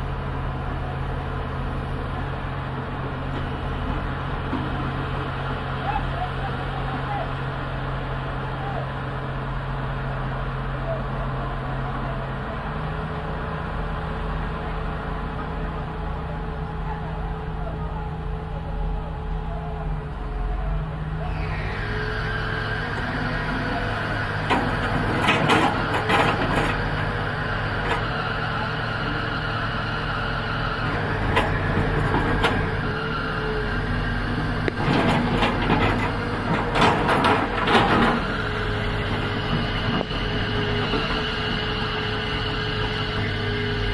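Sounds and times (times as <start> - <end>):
excavator diesel engine running: 0.0 - 43.9
metallic clanks and knocks: 24.5 - 26.8, 34.7 - 38.2.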